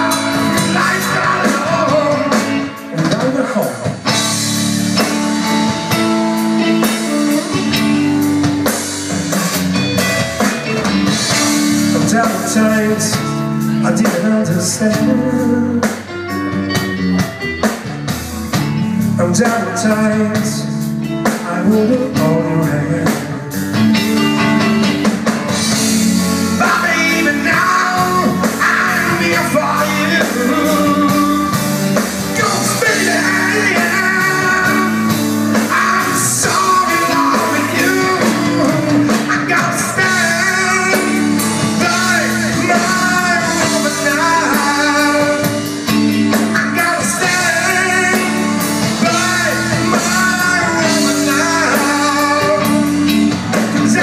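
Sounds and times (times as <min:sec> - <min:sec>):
person singing: 0:00.0 - 0:03.9, 0:11.4 - 0:16.1, 0:19.0 - 0:23.7, 0:26.5 - 0:54.0
live rock band playing: 0:00.0 - 0:54.0.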